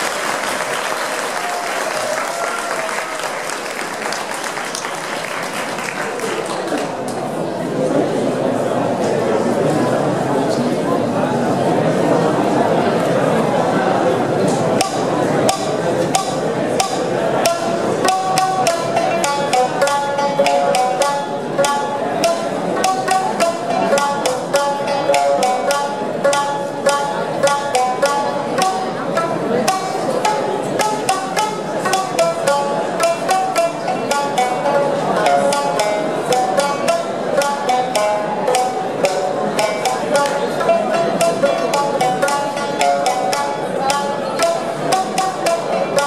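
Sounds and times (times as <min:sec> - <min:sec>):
shamisen duet: 0:14.7 - 0:46.0.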